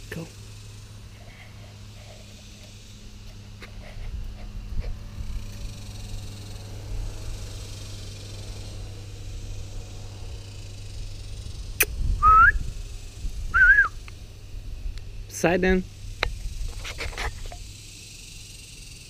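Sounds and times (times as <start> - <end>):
low background rumble: 0.0 - 18.6
person whistling a rising note: 12.2 - 12.6, 13.5 - 14.0.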